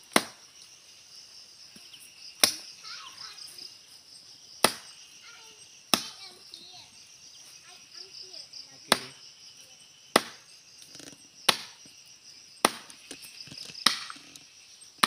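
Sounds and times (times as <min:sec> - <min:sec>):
machete chopping wood: 0:00.0 - 0:00.4, 0:02.4 - 0:02.6, 0:04.6 - 0:04.9, 0:05.9 - 0:06.2, 0:08.9 - 0:09.2, 0:10.1 - 0:11.9, 0:12.6 - 0:14.4
insects droning: 0:00.0 - 0:15.0.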